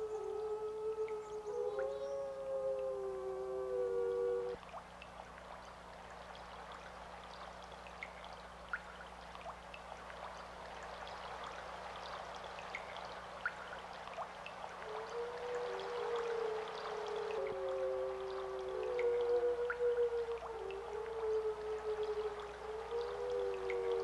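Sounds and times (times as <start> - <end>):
water drips and splashes: 0.0 - 24.0
water flowing and trickling: 0.0 - 24.0.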